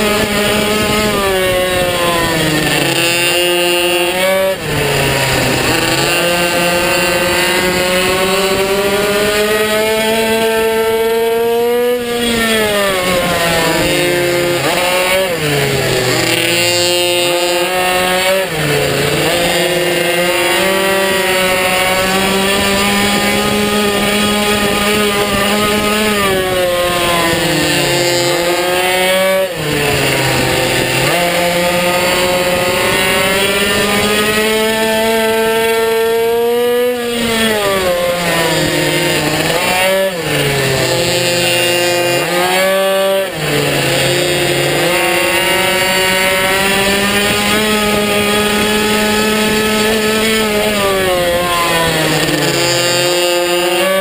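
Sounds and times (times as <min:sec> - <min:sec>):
minibike engine revving: 0:00.0 - 0:54.0.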